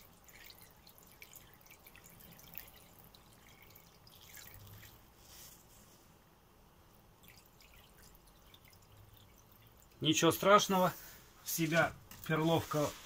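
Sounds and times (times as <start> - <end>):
water dripping and splashing: 0.0 - 5.3, 6.8 - 10.8.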